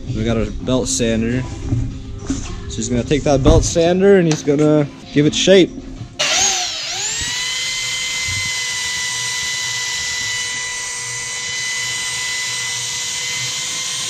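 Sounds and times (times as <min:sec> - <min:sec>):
belt sander whining: 0:06.2 - 0:14.0.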